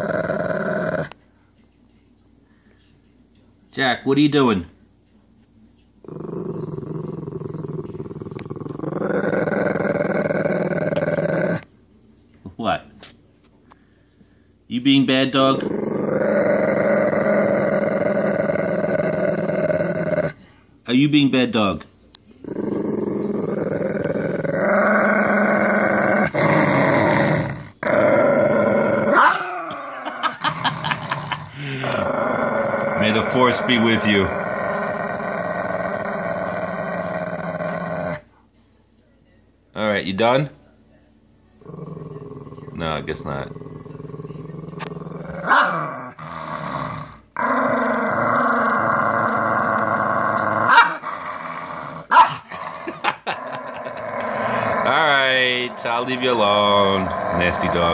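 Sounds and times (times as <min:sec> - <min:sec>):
dog growling: 0:00.0 - 0:01.2, 0:06.0 - 0:11.7, 0:15.4 - 0:20.4, 0:22.4 - 0:38.3, 0:41.6 - 0:57.9.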